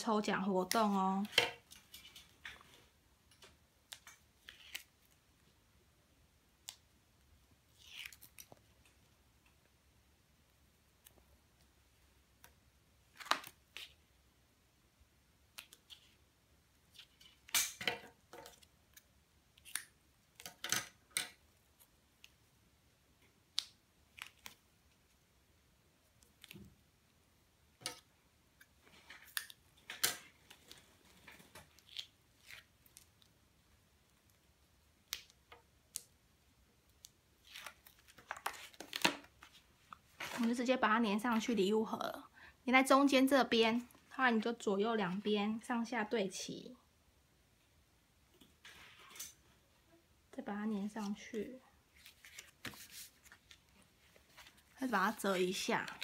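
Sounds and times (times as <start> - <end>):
paper rustling: 51.9 - 56.0.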